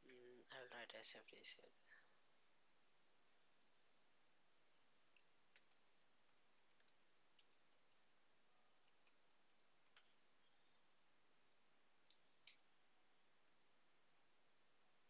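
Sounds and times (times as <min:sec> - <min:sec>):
keyboard typing: 0:05.1 - 0:08.2, 0:08.8 - 0:10.2, 0:12.1 - 0:12.8.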